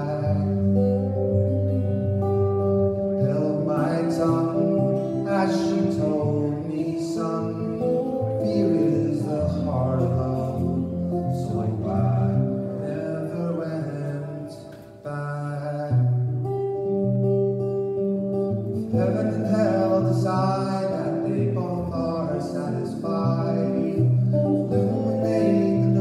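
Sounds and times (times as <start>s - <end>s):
guitar playing: 0.0s - 26.0s.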